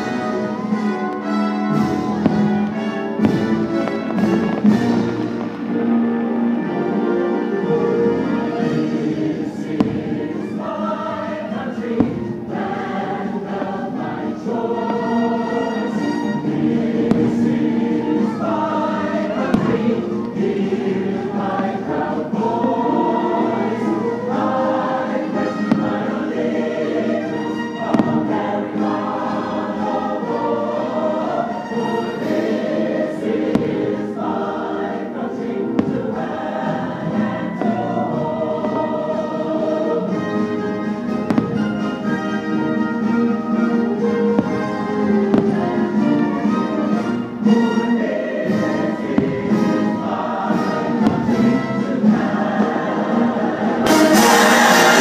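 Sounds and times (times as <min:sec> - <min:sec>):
choir singing: 0:00.0 - 0:55.0
orchestral music: 0:00.0 - 0:55.0
firework bangs: 0:01.7 - 0:07.2, 0:09.5 - 0:10.7, 0:11.5 - 0:21.9, 0:25.2 - 0:30.8, 0:33.2 - 0:39.3, 0:40.1 - 0:47.4, 0:48.5 - 0:55.0.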